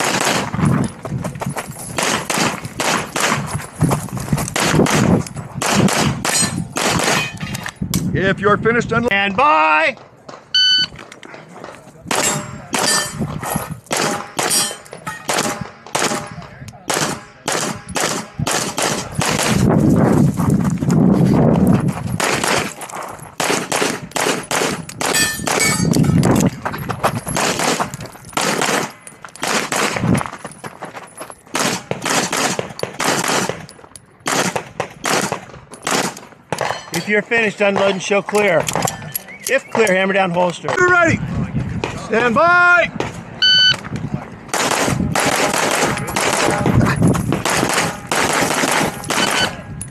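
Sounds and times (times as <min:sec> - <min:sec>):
rapid pistol fire: 0:00.0 - 0:00.6, 0:02.0 - 0:03.5, 0:04.6 - 0:07.3, 0:13.9 - 0:14.6, 0:15.3 - 0:19.7, 0:23.4 - 0:25.7, 0:27.4 - 0:30.1, 0:31.5 - 0:36.2, 0:44.5 - 0:49.6.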